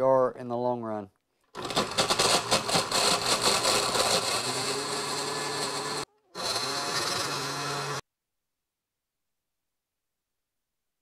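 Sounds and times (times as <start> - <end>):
blender running: 1.6 - 8.0.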